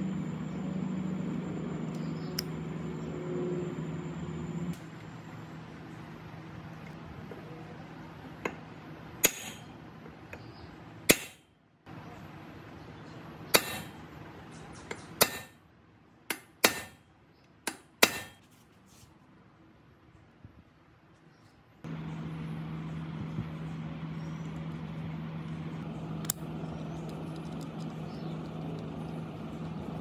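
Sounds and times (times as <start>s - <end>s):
hammer tapping on steel: 16.3s - 17.0s.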